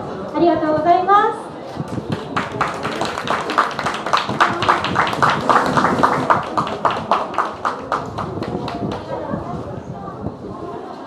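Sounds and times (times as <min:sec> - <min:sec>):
quick claps: 0:01.9 - 0:09.2.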